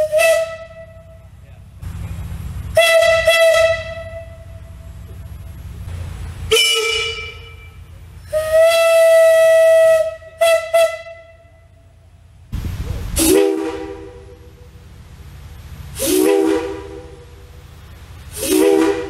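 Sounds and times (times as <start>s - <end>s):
steam whistle blasts: 0.0s - 1.3s, 2.7s - 4.7s, 6.5s - 12.0s, 13.2s - 14.6s, 15.9s - 17.5s, 18.3s - 19.0s.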